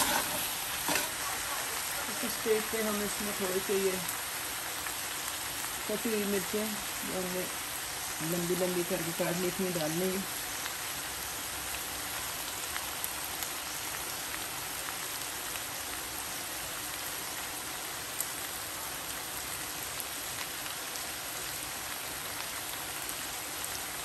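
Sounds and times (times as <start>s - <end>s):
oil popping and crackling: 0.0s - 16.0s
meat sizzling in pan: 0.0s - 24.0s.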